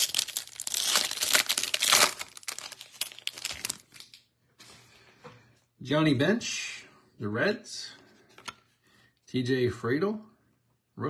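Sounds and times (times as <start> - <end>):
foil wrapper tearing and crinkling: 0.0 - 4.2.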